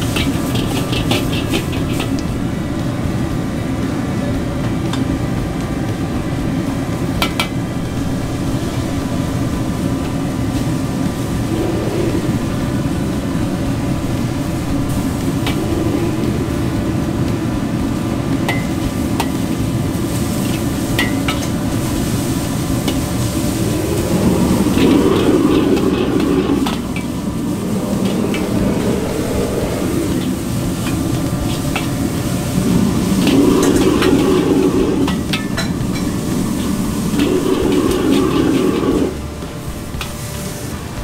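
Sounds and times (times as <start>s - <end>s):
ladle tapping wok: 0.0s - 2.3s, 18.4s - 23.6s
noodles sizzling: 0.0s - 3.8s, 7.0s - 41.0s
gas burner roaring: 0.0s - 41.0s.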